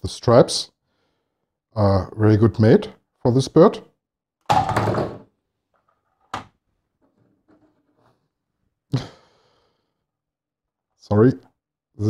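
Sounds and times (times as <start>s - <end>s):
brick model thump: 4.5s - 5.3s.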